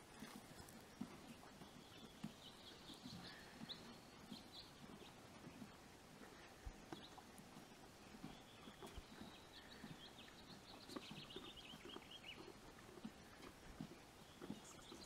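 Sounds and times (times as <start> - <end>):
bird chirping: 8.1 - 12.6, 14.2 - 15.0.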